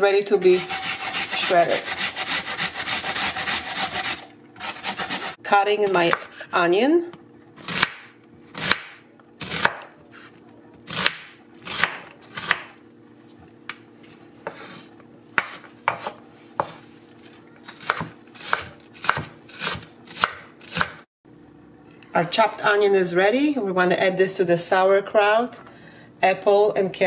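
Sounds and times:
knife striking cutting board: 15.4 - 16.8.

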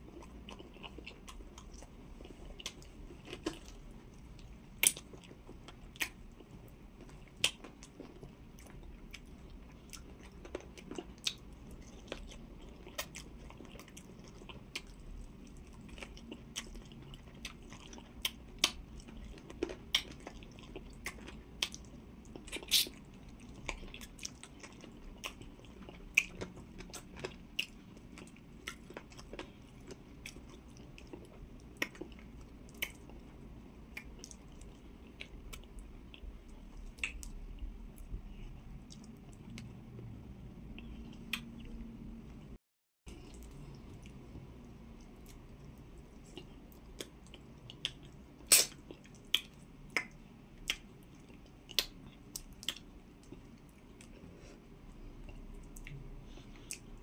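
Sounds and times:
person chewing food: 0.0 - 40.1, 40.7 - 41.8, 43.1 - 57.0
mouth clicks and smacks: 22.5 - 23.0, 40.8 - 41.7, 46.4 - 53.4.

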